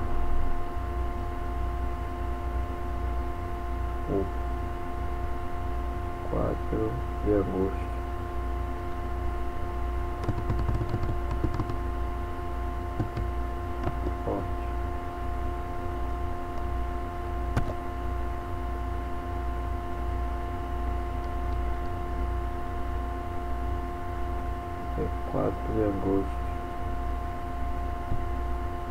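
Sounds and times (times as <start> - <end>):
electrical hum: 0.0 - 28.9
steady whining tones: 0.0 - 28.9
faint keyboard clicks: 10.2 - 11.8, 13.0 - 14.0.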